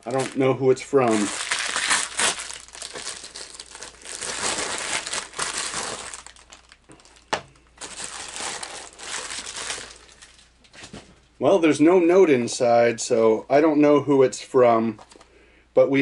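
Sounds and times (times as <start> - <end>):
plastic mailer crinkling: 0.0 - 10.5.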